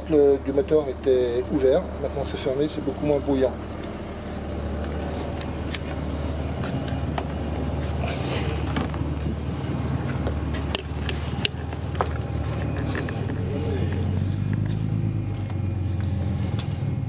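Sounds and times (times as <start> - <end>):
diesel engine idling: 0.0 - 17.0.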